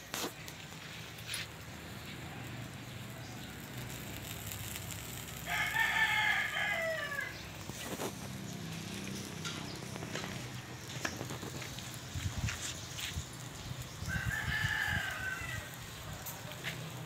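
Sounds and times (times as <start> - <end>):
rooster crowing: 5.4 - 7.4, 14.0 - 15.8.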